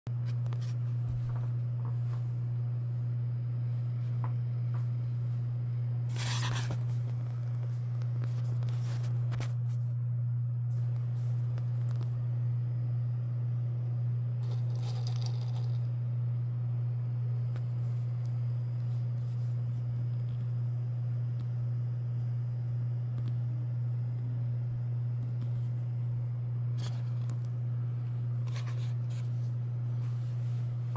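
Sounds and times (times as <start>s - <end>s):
low electrical hum: 0.1s - 30.9s
scraping rustling noises: 6.1s - 7.0s.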